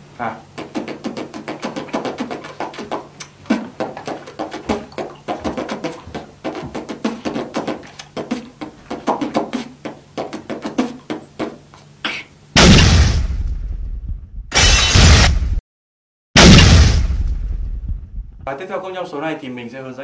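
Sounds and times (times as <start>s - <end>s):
beatbox lip roll: 0.1s - 12.4s.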